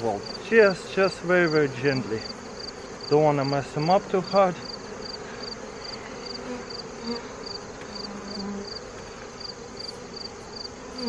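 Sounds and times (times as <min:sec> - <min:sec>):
honey bees buzzing: 0:00.0 - 0:11.0
insect chirping in pulses: 0:00.0 - 0:11.0.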